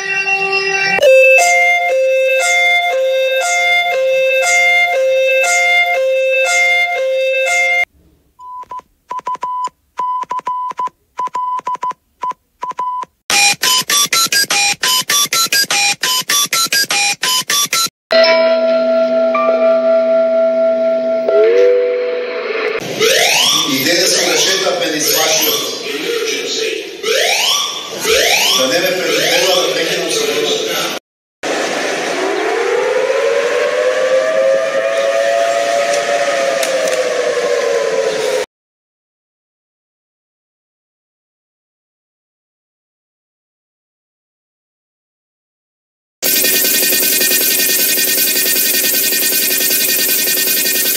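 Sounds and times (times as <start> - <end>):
siren winding up to a wail: 0.0 - 7.9, 13.3 - 17.9, 19.0 - 25.8, 27.0 - 29.6, 32.1 - 38.5, 46.2 - 50.9
electronic alarm beeps: 0.0 - 11.9, 12.6 - 17.9, 23.0 - 25.8, 46.2 - 50.9
beeps jumping between pitches: 1.0 - 7.8, 46.2 - 50.9.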